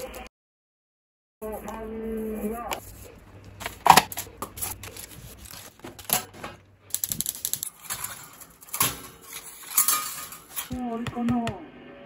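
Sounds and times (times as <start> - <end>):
aluminium foil crinkling: 1.4 - 10.7.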